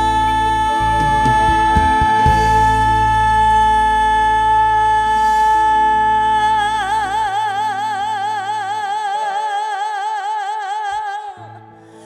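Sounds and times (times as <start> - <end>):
bass and drums: 0.0 - 6.5.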